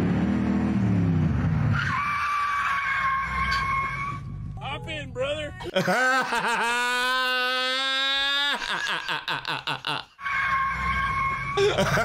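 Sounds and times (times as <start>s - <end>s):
bird screaming: 1.8s - 4.2s
wavering cries: 1.8s - 4.2s, 6.0s - 12.0s.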